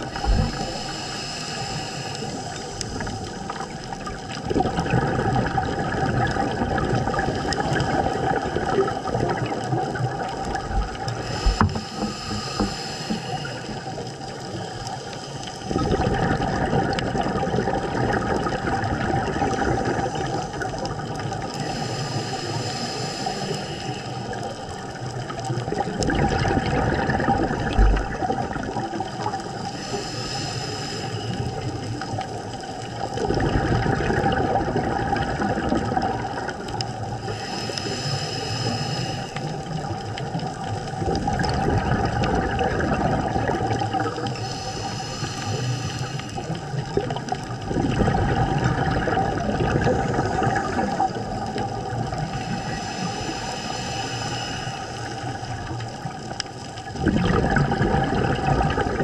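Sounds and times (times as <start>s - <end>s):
exhaled bubbles rushing: 0.0s - 0.9s, 2.1s - 21.7s, 24.1s - 29.7s, 31.3s - 37.3s, 39.4s - 45.0s, 45.6s - 53.6s, 54.8s - 59.0s
regulator inhale hiss: 0.0s - 4.1s, 7.2s - 8.4s, 9.5s - 15.9s, 19.5s - 26.0s, 27.7s - 33.1s, 36.6s - 41.1s, 43.8s - 47.6s, 49.9s - 56.6s
steady hum: 0.0s - 4.1s, 10.7s - 14.0s, 37.2s - 39.8s.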